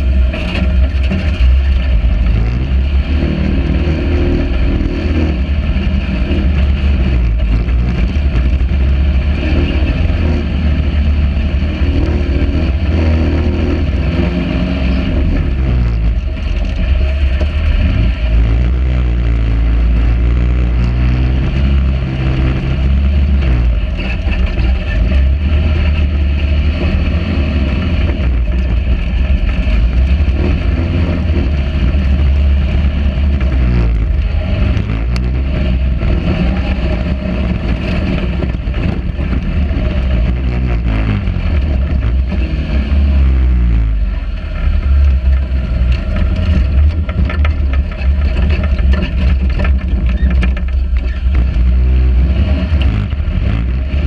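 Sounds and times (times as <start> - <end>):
dune buggy engine revving: 0.0 - 54.0.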